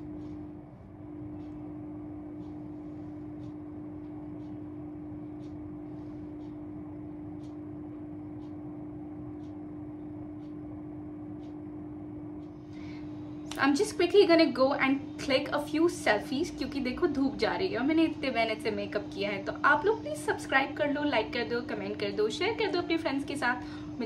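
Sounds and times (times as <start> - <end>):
steady low hum: 0.0 - 24.0
faint tick: 1.3 - 1.6, 2.3 - 4.6, 5.2 - 8.6, 9.3 - 9.6, 10.4 - 10.6, 11.3 - 11.6, 12.3 - 12.8.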